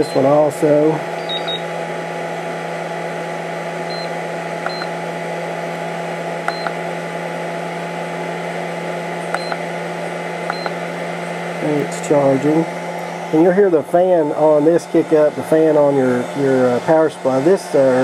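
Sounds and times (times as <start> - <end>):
cooling fan humming: 0.0 - 18.0
short high keypad beeps: 1.2 - 1.7, 3.9 - 4.9, 6.5 - 6.8, 9.4 - 9.6, 10.5 - 10.7.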